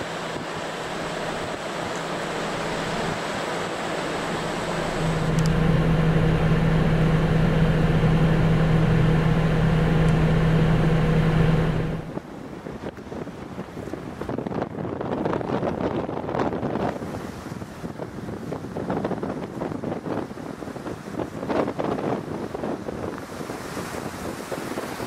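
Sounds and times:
car driving on snowy road: 0.0s - 14.4s
strong blizzard wind: 0.0s - 25.0s.

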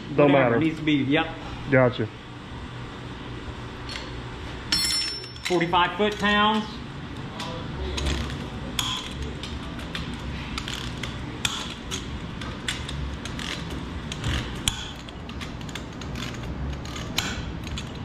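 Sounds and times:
metal parts clinking: 4.7s - 6.3s.

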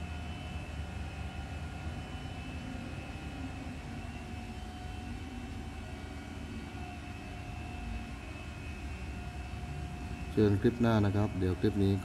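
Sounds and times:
faint whining tones: 0.0s - 12.0s.

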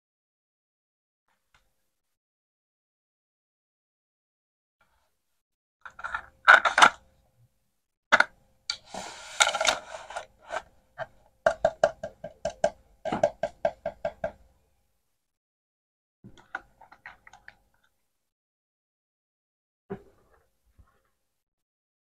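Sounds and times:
plastic toy pieces knocking: 5.9s - 7.0s, 11.4s - 14.4s.

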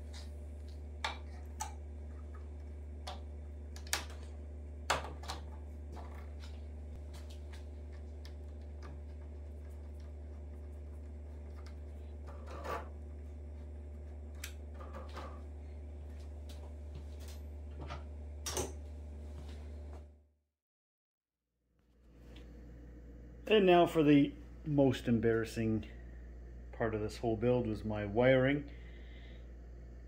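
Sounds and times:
steady low hum: 0.0s - 20.2s, 21.9s - 30.0s.

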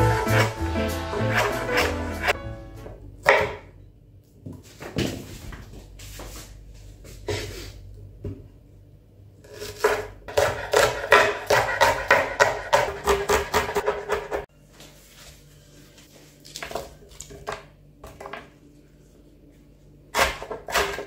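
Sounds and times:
knife chopping on wooden board: 3.2s - 3.7s, 9.7s - 14.4s, 20.2s - 21.0s.

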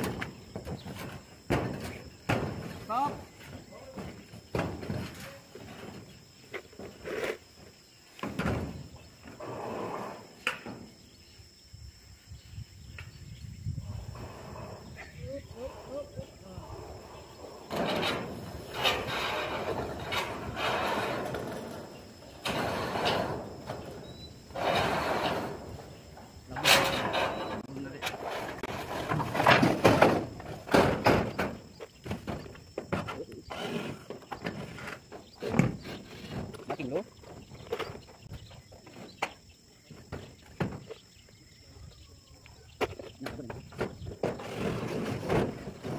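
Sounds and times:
boots and tools on metal roofing: 0.0s - 11.2s, 16.6s - 45.9s.

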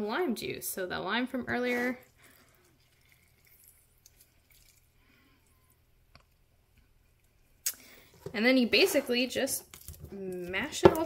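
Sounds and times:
faint drips: 1.9s - 5.8s.

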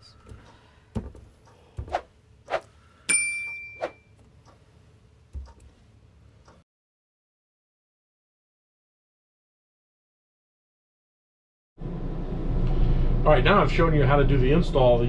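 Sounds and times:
bright ding: 3.1s - 4.1s.

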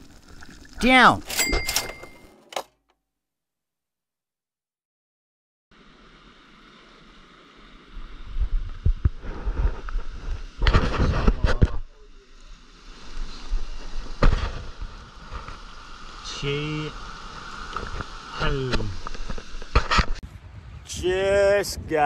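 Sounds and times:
surf washing over rocks: 5.7s - 20.2s
wind rumbling on microphone: 5.8s - 22.0s.

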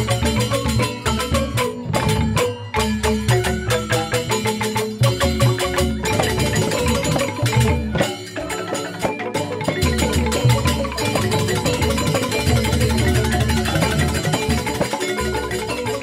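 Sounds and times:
bamboo xylophones playing: 0.0s - 16.0s.

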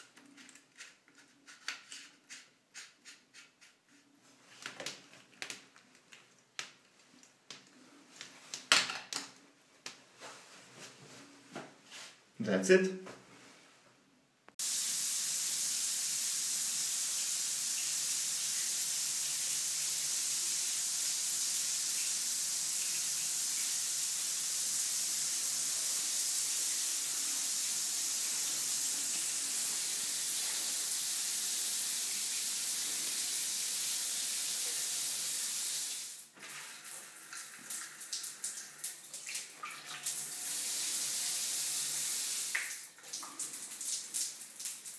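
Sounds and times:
shower water pouring on tiles: 14.6s - 44.9s
water splashing and dripping: 35.9s - 44.9s.

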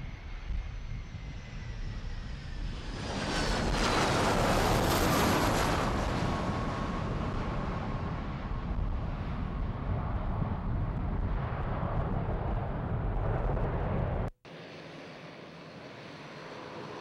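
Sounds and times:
jet engine roar: 0.0s - 17.0s.

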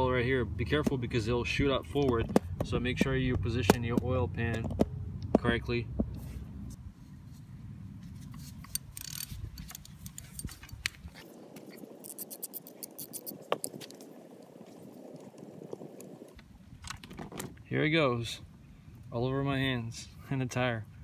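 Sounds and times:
metal tools scraping: 8.4s - 13.4s
socket ratchet clicking: 8.7s - 10.9s.

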